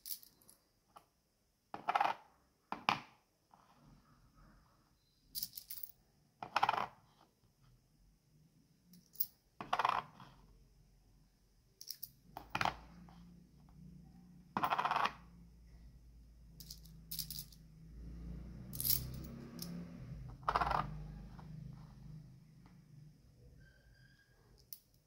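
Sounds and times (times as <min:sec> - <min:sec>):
coins clinking on board: 0:00.0 - 0:00.6, 0:05.4 - 0:05.9, 0:11.8 - 0:12.7, 0:14.6 - 0:15.2, 0:16.6 - 0:17.6, 0:18.8 - 0:19.8.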